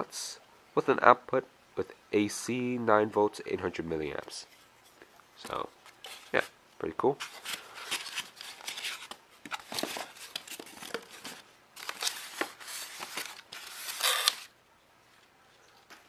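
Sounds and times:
paper rustling and crinkling: 0:05.5 - 0:06.5, 0:07.1 - 0:14.5.

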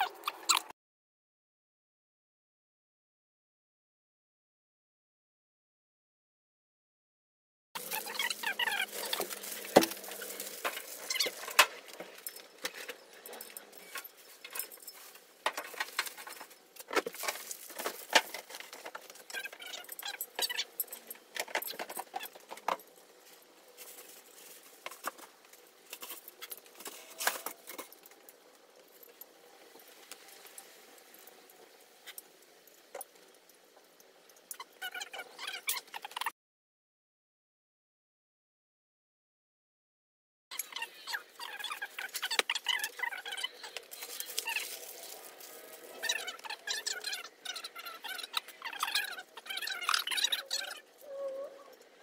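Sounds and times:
steel parts and screws rattling: 0:07.8 - 0:36.3, 0:40.5 - 0:50.8.

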